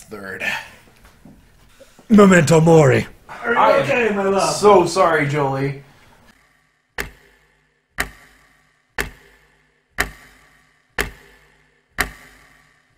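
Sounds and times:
clock ticking: 0:07.0 - 0:12.9.

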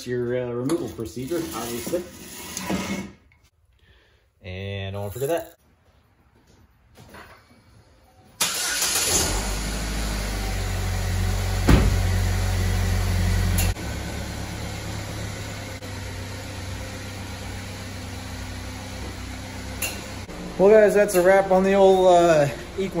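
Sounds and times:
car engine starting and running: 0:08.4 - 0:23.0
knock: 0:11.7 - 0:11.9.

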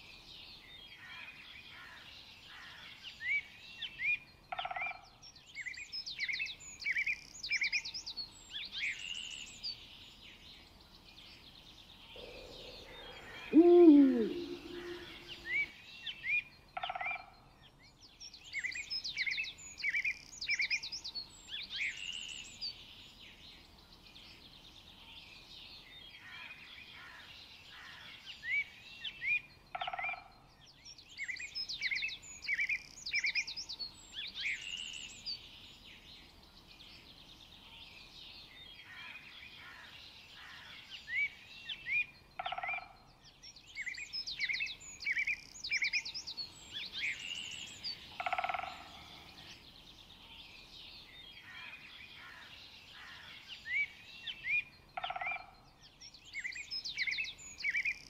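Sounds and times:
faint background hiss: 0:00.0 - 0:16.8
birds chirping and trilling: 0:09.0 - 0:17.5, 0:29.6 - 0:58.0
short lower bird call: 0:12.2 - 0:15.6.

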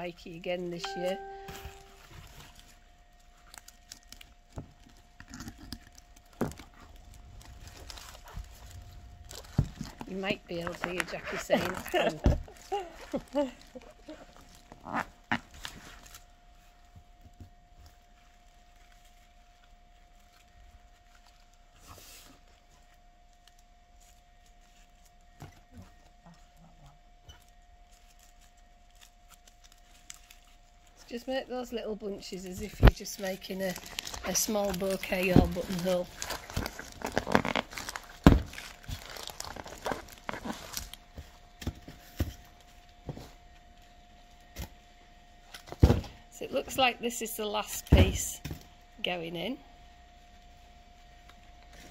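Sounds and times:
faint high hum: 0:00.0 - 0:05.2
foliage rustling and crinkling: 0:00.3 - 0:45.7.

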